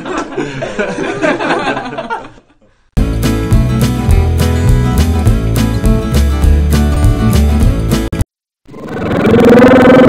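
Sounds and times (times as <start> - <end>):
laughter: 0.0 - 2.7
music with steady beat: 3.0 - 8.2.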